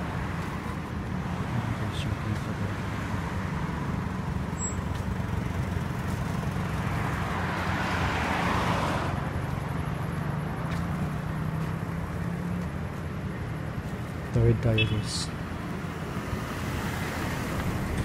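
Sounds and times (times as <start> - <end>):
street traffic hum: 0.0 - 18.0
car passing by: 4.6 - 12.4.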